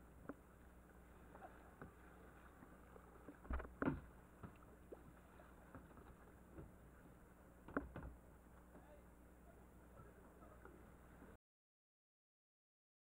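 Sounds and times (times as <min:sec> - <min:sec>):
kayak paddle strokes: 0:00.0 - 0:08.9
moving water: 0:00.0 - 0:11.4.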